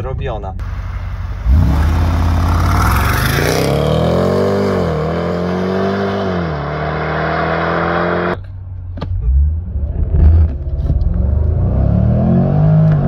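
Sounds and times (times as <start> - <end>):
car engine accelerating hard: 0.6 - 8.4.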